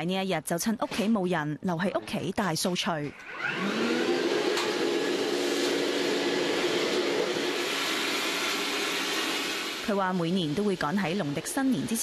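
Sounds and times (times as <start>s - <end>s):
vacuum cleaner running: 3.1s - 12.0s.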